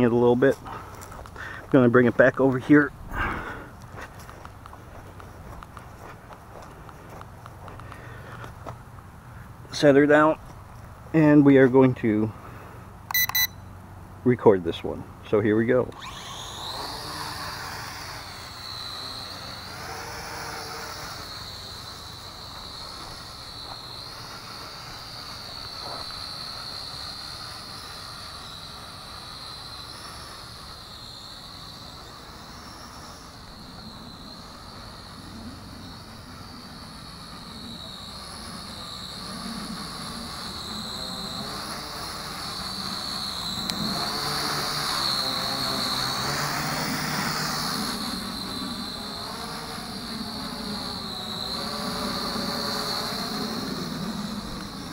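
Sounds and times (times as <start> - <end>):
toy drone propellers whining: 15.6 - 54.9.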